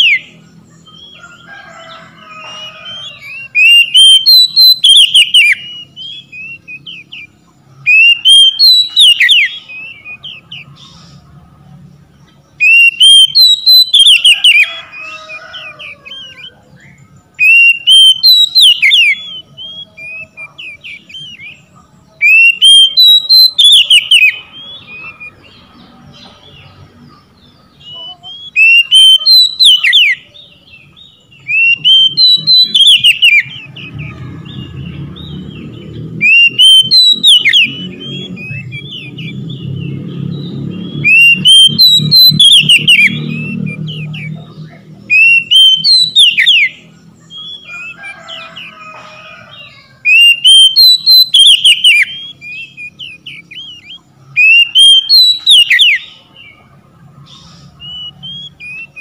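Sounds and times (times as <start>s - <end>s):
bird whistling song phrases: 0.0s - 11.2s, 12.5s - 25.6s, 27.3s - 56.6s, 57.2s - 59.0s
quiet bird chirps: 14.7s - 59.0s.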